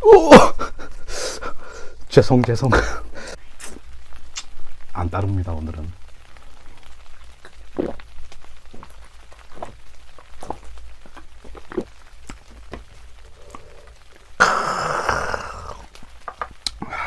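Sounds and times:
chewing food: 7.4s - 14.2s.

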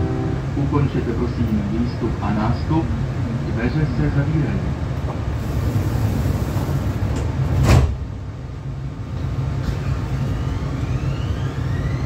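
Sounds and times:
train low rumble: 0.0s - 12.0s
train doors thumping shut: 5.0s - 8.2s
traction motors whining: 9.7s - 12.0s.

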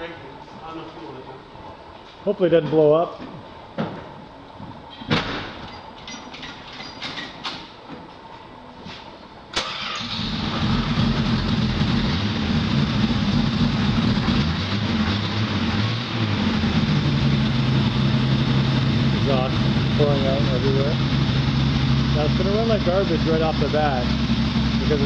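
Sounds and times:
engine starting and running: 9.5s - 25.0s.

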